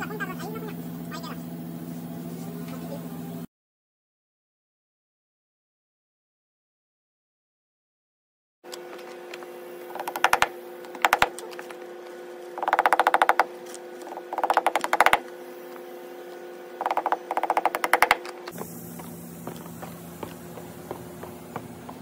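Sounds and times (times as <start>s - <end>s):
faint hum: 8.7s - 22.0s.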